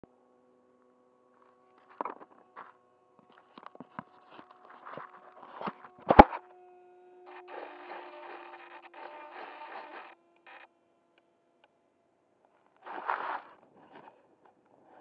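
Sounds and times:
faint steady tones: 0.1s - 15.0s
low even buzzing: 0.1s - 15.0s.

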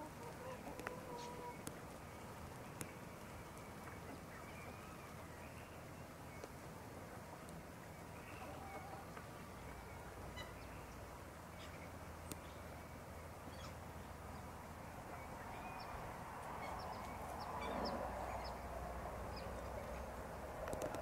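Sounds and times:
hens clucking: 0.0s - 1.7s.

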